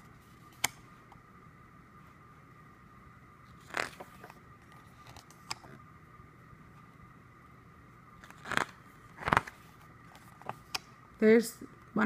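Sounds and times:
pages turning swish: 3.6s - 5.3s, 8.2s - 10.6s.

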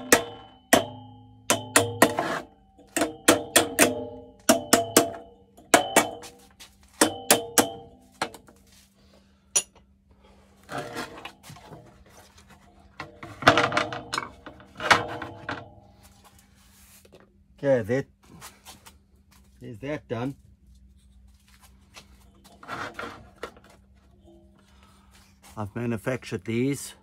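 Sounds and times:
hammer striking metal: 0.0s - 8.5s, 9.5s - 9.8s.

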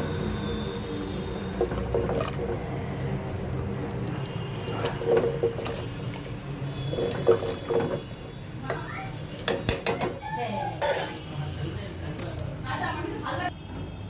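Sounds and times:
lentils squelching: 0.1s - 10.0s
spoon knocking against pot: 9.4s - 10.2s.

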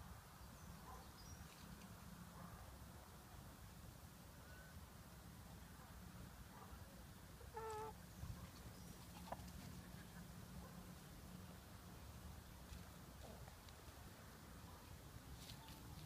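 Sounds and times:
faint chirp: 4.4s - 4.8s
chicken call: 7.5s - 8.0s.

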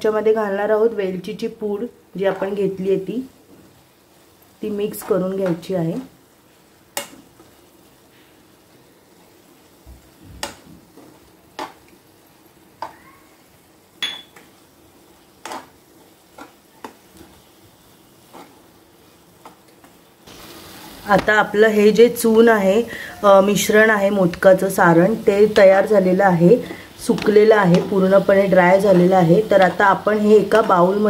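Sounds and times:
faint sizzle: 0.0s - 31.0s
spoon clinking against pan: 14.0s - 14.4s.

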